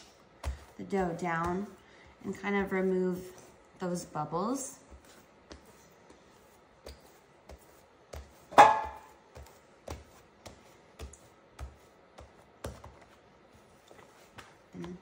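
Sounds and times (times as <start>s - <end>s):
hands patting dough: 0.0s - 15.0s.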